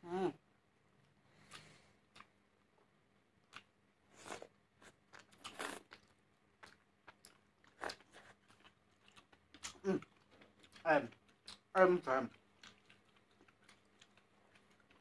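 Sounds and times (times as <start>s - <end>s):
chewing: 1.4s - 2.3s, 3.4s - 15.0s.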